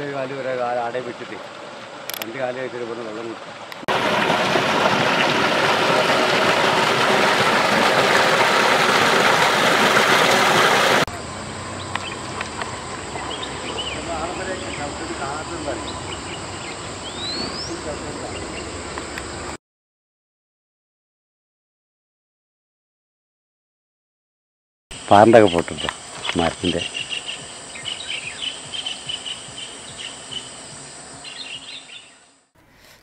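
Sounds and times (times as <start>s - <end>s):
stream trickling over rocks: 0.0s - 15.7s
birds chirping: 11.1s - 19.5s, 24.9s - 32.5s
high insect drone: 11.1s - 19.6s, 24.9s - 32.5s.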